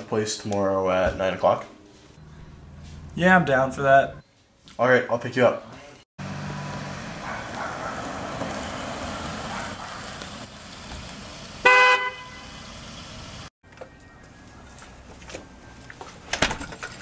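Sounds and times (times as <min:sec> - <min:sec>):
car horn blast: 0:11.6 - 0:12.6.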